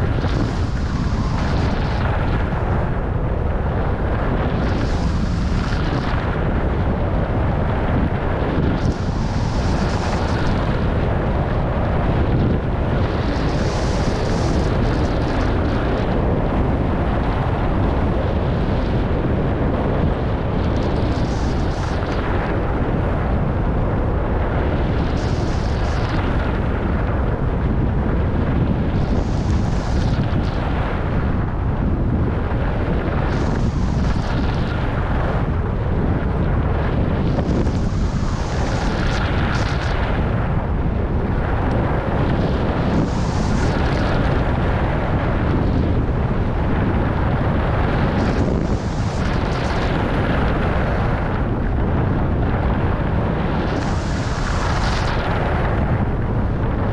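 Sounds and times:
wind buffeting microphone: 0.0 - 56.9.

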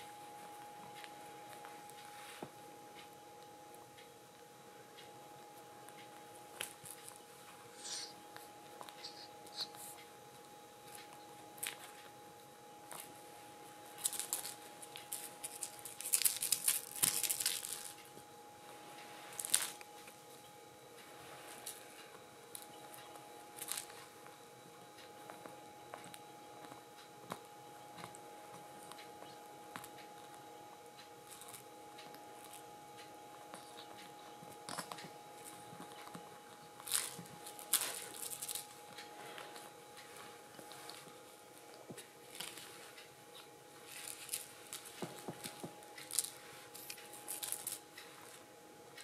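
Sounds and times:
faint steady hum: 0.0 - 49.0
scuffs and rustles on blanket: 1.5 - 2.6.

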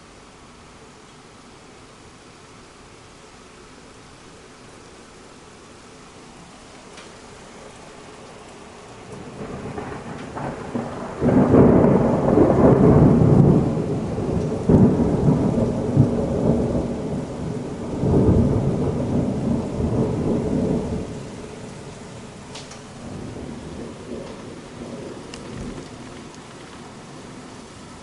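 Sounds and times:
heavy rain hissing: 0.0 - 28.0
rolling thunder: 8.8 - 28.0.

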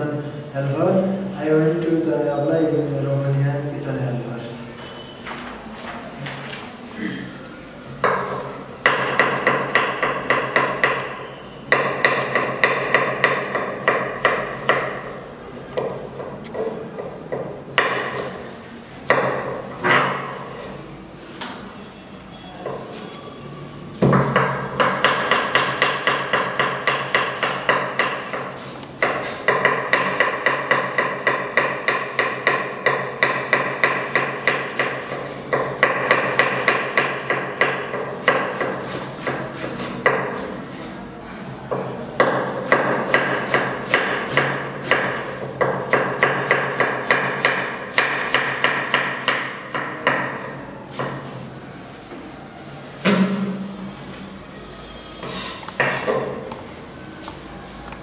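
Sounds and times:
knife chopping cabbage on wooden board: 11.7 - 15.1, 24.2 - 40.5, 42.2 - 51.3.

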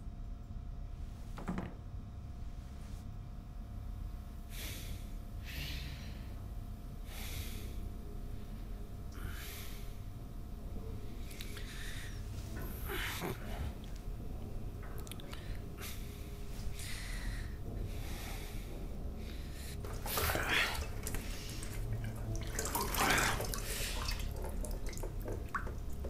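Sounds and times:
low steady rumble: 0.0 - 26.0
man breathing hard through nose: 4.5 - 6.4, 7.0 - 7.9, 9.2 - 10.0, 11.4 - 13.8, 15.3 - 21.7.

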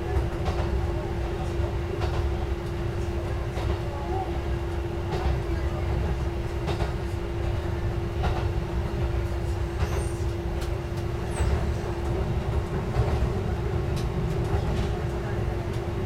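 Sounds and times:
wheels rumbling on rails: 4.8 - 16.0.

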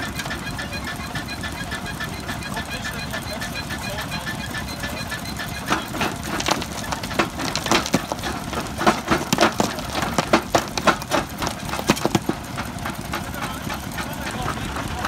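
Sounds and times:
jaw crusher cracking concrete: 5.4 - 15.0.

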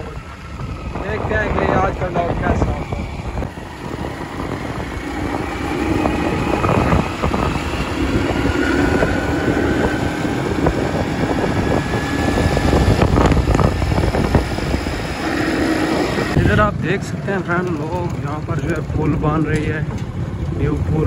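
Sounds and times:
vehicle engine cruising: 0.0 - 21.0
wind buffeting microphone: 0.0 - 21.0.

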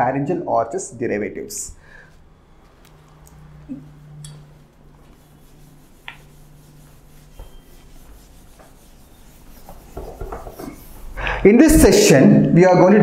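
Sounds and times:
eraser scrubbing whiteboard: 3.9 - 12.0.

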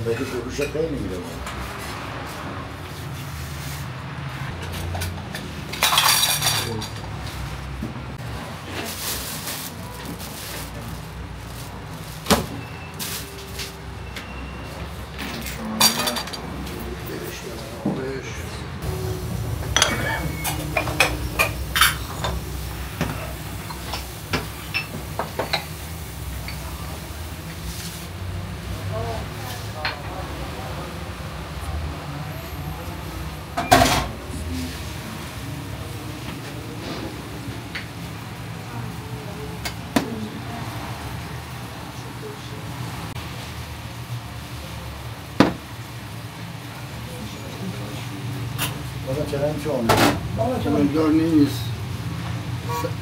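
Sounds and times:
dishes clinking: 4.8 - 7.1, 15.3 - 16.5, 19.6 - 25.8.

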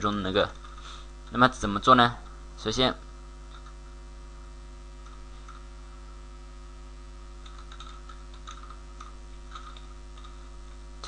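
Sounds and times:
electrical hum: 0.0 - 11.0
computer keyboard keystrokes: 7.4 - 10.4.

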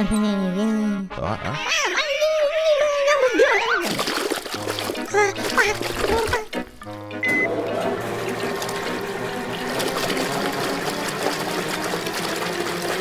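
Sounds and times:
swirling flushing liquid: 3.3 - 13.0
short high beep: 7.2 - 7.5.

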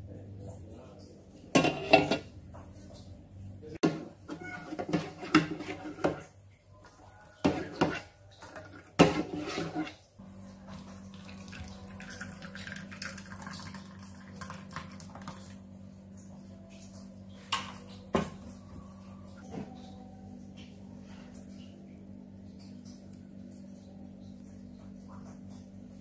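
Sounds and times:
plastic ladle scraping a pot: 4.3 - 6.3, 7.4 - 10.0
steady low hum: 9.0 - 26.0
thick liquid pouring: 10.6 - 15.7.

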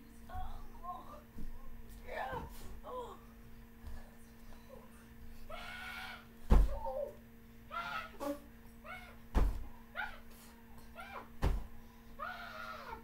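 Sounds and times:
heavy thuds of blows on a sofa: 6.4 - 6.8, 9.3 - 9.7, 11.4 - 11.7.

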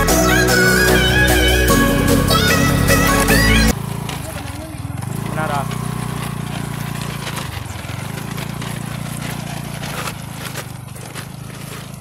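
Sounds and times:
scooter engine running: 0.0 - 12.0
stones crunching under tyres: 3.0 - 12.0.

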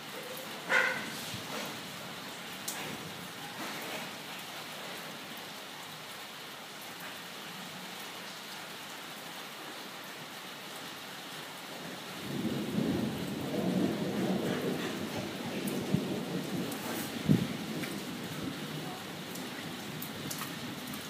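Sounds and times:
steady rain falling: 0.0 - 21.0
deep rumble of thunder: 12.2 - 20.9.

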